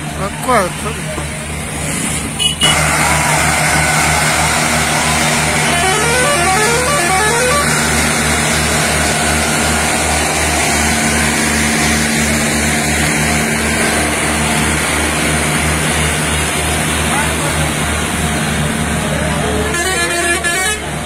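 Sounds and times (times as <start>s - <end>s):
tractor engines throbbing: 0.0s - 21.0s
musical horn rising notes: 2.4s - 11.5s.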